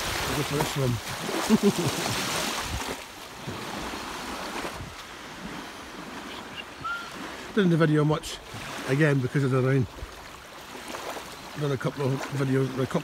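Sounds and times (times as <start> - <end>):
wind blowing: 0.0 - 9.1
small waves lapping on sand: 0.0 - 13.0
wind buffeting microphone: 4.5 - 6.2.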